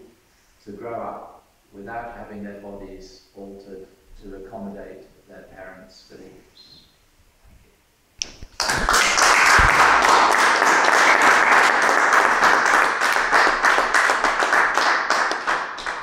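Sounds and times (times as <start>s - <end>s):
audience applauding: 8.6s - 16.0s.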